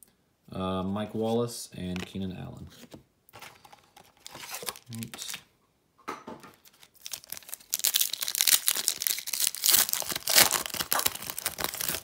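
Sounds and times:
plastic wrapper crinkling and tearing: 0:03.4 - 0:05.4, 0:06.6 - 0:12.0.

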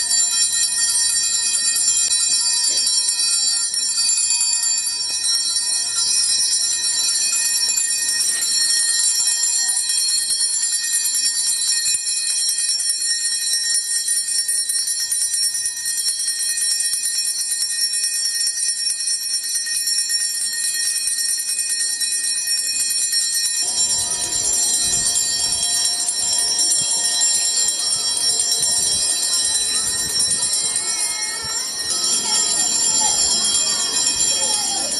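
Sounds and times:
bells jingling: 0:00.0 - 0:11.8, 0:17.8 - 0:34.9
voices: 0:23.6 - 0:34.9.

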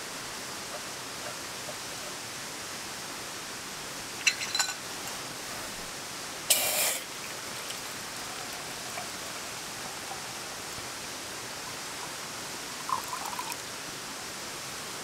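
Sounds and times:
gas stove hissing: 0:06.5 - 0:11.7
water pouring into pot: 0:06.5 - 0:13.7.

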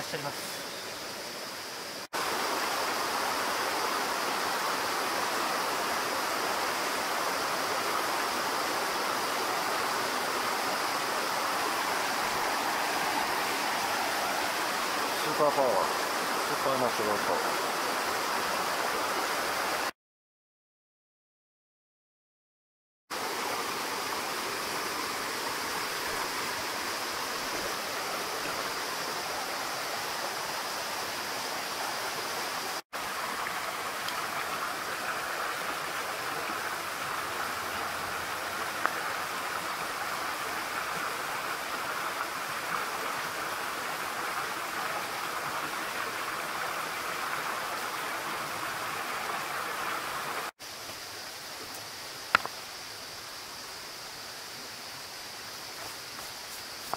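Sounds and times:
stream flowing over rocks: 0:00.0 - 0:19.9, 0:23.1 - 0:56.9.

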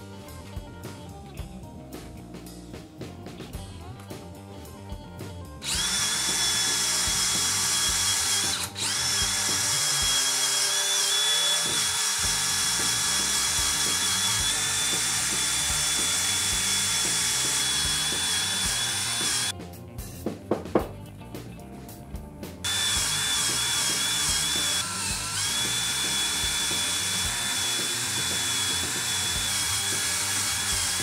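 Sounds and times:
cordless drill motor whine: 0:05.6 - 0:19.5, 0:22.6 - 0:31.0.

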